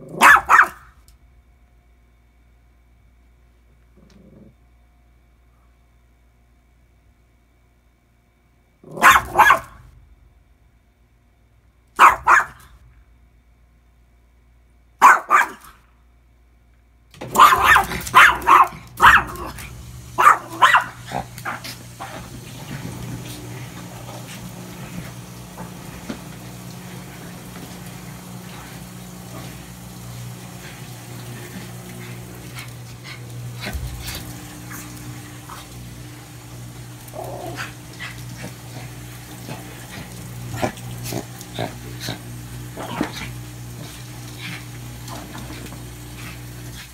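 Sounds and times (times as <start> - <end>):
small dog barking sharply: 0.1 - 0.9, 9.0 - 9.8, 12.0 - 12.7, 15.0 - 15.8, 17.3 - 19.5, 20.2 - 21.0
steady low hum: 0.8 - 15.0, 15.8 - 46.9.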